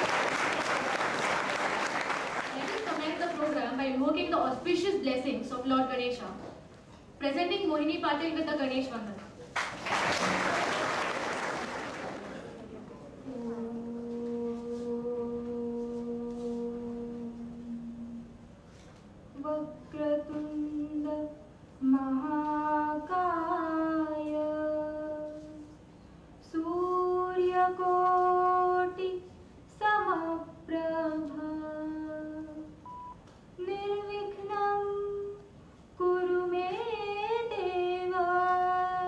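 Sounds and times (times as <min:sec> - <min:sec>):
woman singing unaccompanied: 0:13.3 - 0:18.4, 0:19.4 - 0:25.7, 0:26.4 - 0:32.8, 0:33.6 - 0:35.4, 0:36.0 - 0:39.0.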